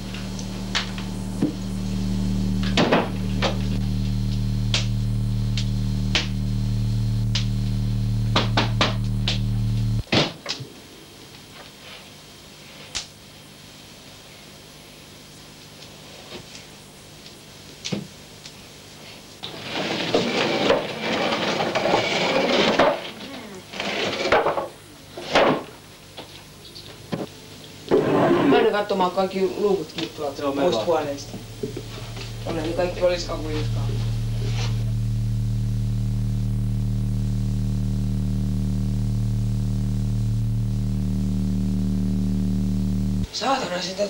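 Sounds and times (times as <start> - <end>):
low buzzing hum: 0.0 - 10.1, 29.1 - 43.3.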